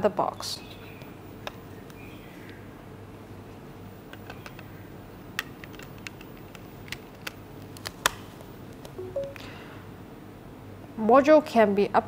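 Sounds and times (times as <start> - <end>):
plastic modules clicking together: 5.4 - 8.2.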